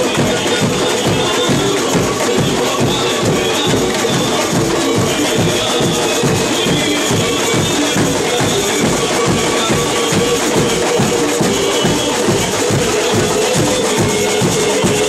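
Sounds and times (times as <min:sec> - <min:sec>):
marching drums: 0:00.0 - 0:15.0
shakers and jingles: 0:00.0 - 0:15.0.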